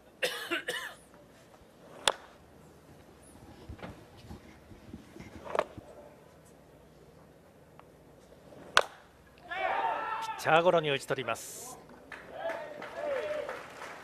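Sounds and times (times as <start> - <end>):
baseball popping into mitt: 2.0 - 2.3, 8.6 - 9.1.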